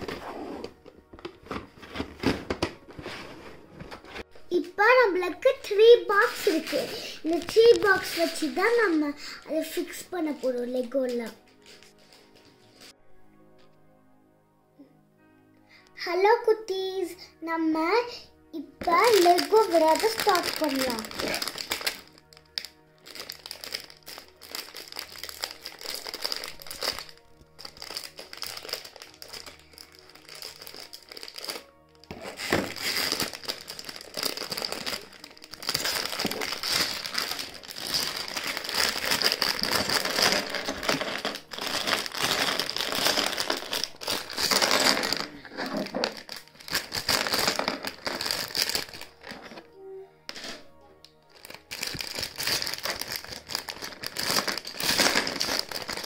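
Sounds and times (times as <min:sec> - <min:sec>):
background music: 0:00.0 - 0:56.0
plastic bag crinkling: 0:06.0 - 0:10.9, 0:18.8 - 0:49.7, 0:51.3 - 0:56.0.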